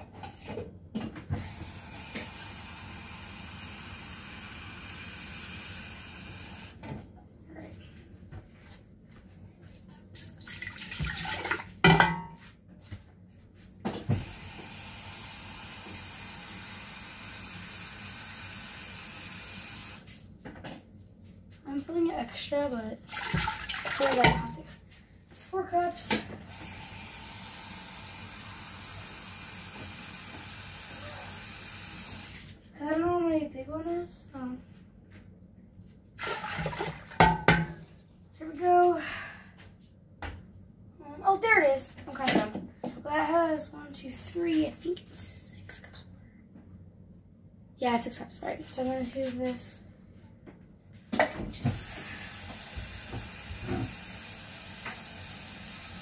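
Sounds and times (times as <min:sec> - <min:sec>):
kitchen tap running: 0:01.3 - 0:06.8, 0:10.3 - 0:11.7, 0:14.1 - 0:20.0, 0:23.1 - 0:24.6, 0:26.5 - 0:32.5, 0:36.2 - 0:37.8, 0:51.7 - 0:56.0
water from tap filling cup: 0:23.1 - 0:24.6, 0:36.2 - 0:37.6, 0:51.8 - 0:56.0.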